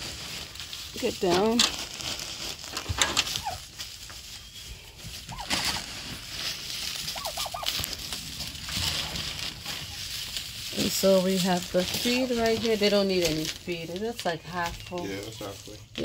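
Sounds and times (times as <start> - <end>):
wood shavings pouring from a bag: 0.0 - 14.2
turkeys yelping: 2.9 - 11.0.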